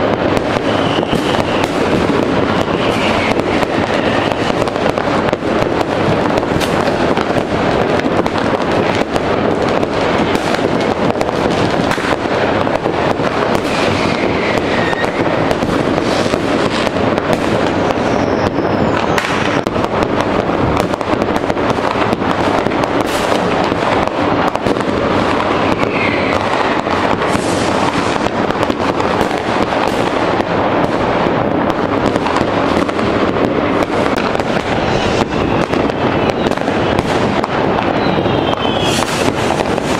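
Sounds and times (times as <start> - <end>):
fireworks bangs and crackling: 0.0 - 39.9
firework whistles gliding in pitch: 0.4 - 5.0, 13.5 - 19.7, 25.2 - 28.3, 33.8 - 39.9.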